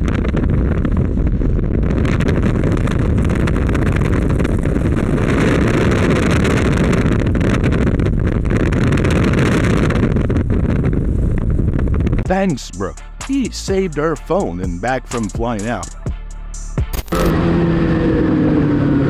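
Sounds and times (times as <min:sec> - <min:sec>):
wind buffeting microphone: 0:00.0 - 0:12.4
road noise: 0:15.6 - 0:19.0.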